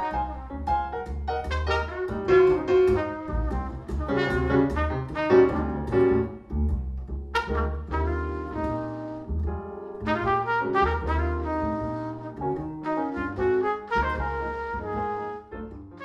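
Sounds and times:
jazz music with brass lead: 0:00.0 - 0:16.0
low bass notes: 0:00.0 - 0:16.0
piano: 0:00.0 - 0:16.0.

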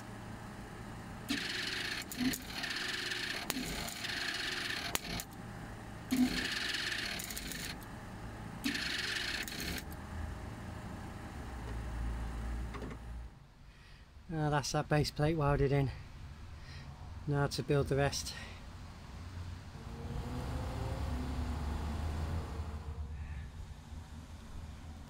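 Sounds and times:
mig welder crackling and sizzling: 0:02.0 - 0:05.4.

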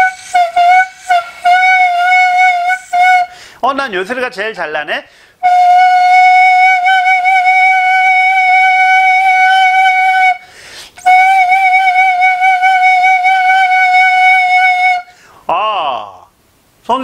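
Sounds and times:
flute long held notes: 0:00.0 - 0:03.4, 0:05.4 - 0:15.2
breath: 0:03.3 - 0:03.6, 0:05.1 - 0:05.4, 0:10.4 - 0:11.0, 0:15.1 - 0:15.5.

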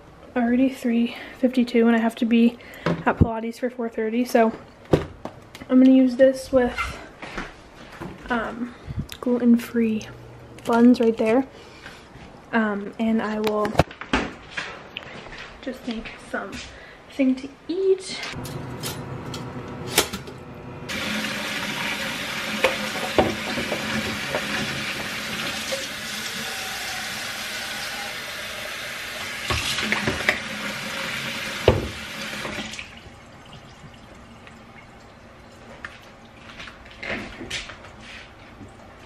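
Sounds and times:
faucet water filling pitcher: 0:20.9 - 0:36.5.

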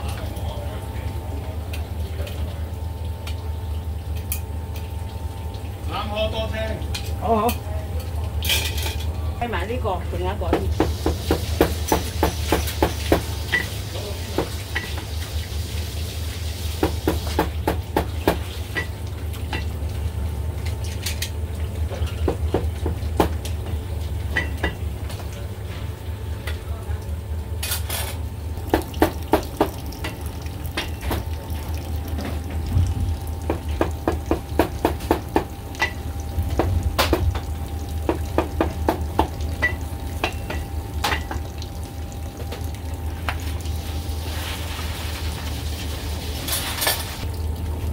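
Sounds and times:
steady low hum: 0:17.4 - 0:47.9.

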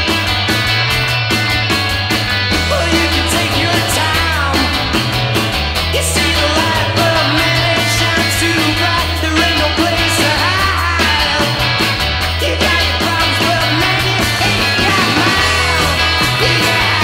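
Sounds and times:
bass line: 0:00.0 - 0:17.0
drums: 0:00.0 - 0:17.0
rock song playing: 0:00.0 - 0:17.0.

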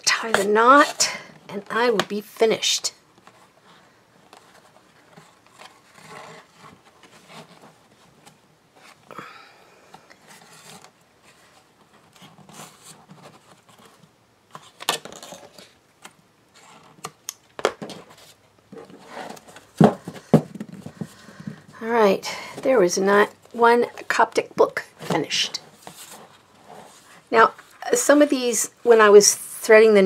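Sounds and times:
book knocking on table: 0:19.8 - 0:21.6.

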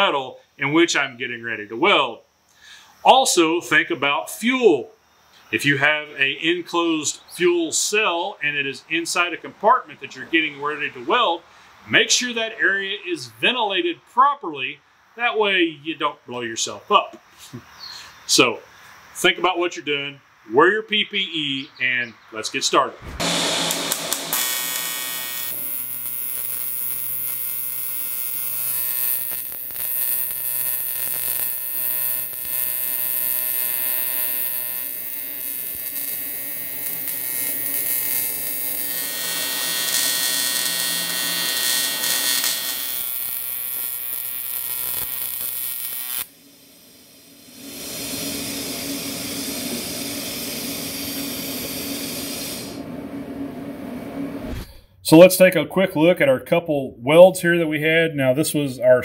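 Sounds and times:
welding arc buzzing and hissing: 0:23.0 - 0:52.9.

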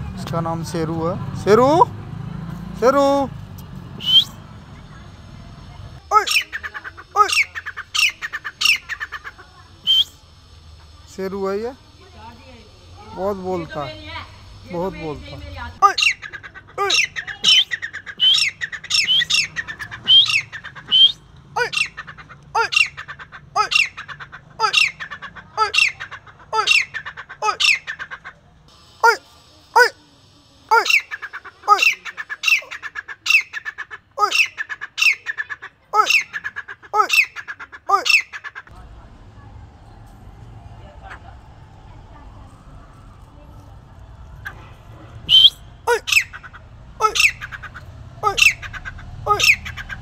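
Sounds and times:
francolin calling harsh notes: 0:06.0 - 0:28.1, 0:30.6 - 0:38.7, 0:44.4 - 0:50.0.

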